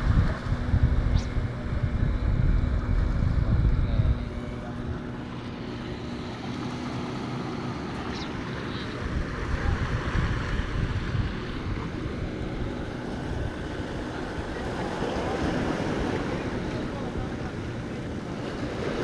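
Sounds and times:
faint low drone: 0.0s - 19.0s
wind buffeting microphone: 0.0s - 19.0s
waves breaking on rocks: 6.6s - 19.0s.

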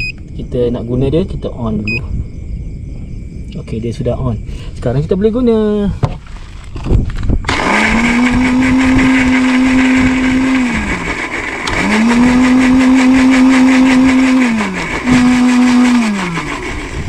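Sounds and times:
blender motor whirring: 7.4s - 17.0s.

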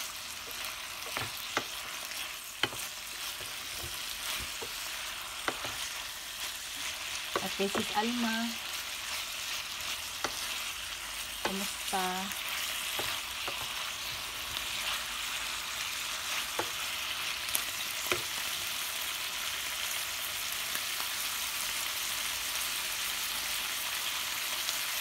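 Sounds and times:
food sizzling in a frying pan: 0.0s - 25.0s
utensil clicking against pan: 0.5s - 1.8s, 2.6s - 4.8s.

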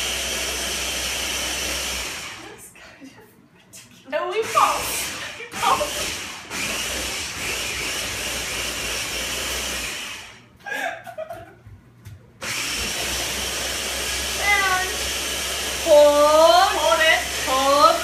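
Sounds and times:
blender whirring: 0.0s - 2.6s, 4.4s - 10.5s, 12.4s - 18.0s.

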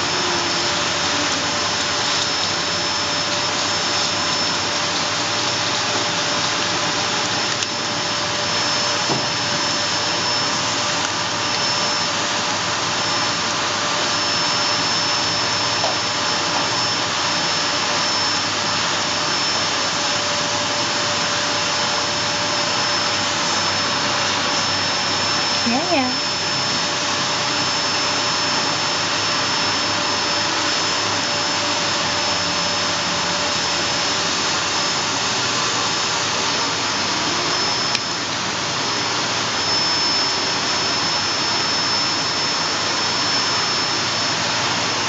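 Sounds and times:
high-pitched whine: 0.0s - 45.0s.

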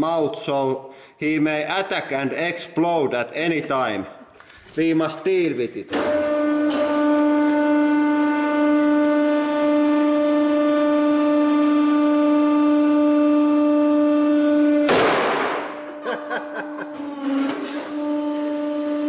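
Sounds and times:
gas cartridge bursting: 14.8s - 15.9s.

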